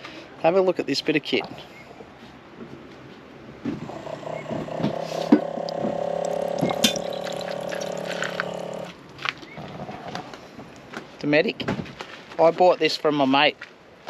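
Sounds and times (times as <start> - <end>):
water pump whirring: 3.8 - 9.0
liquid trickling: 3.9 - 8.9.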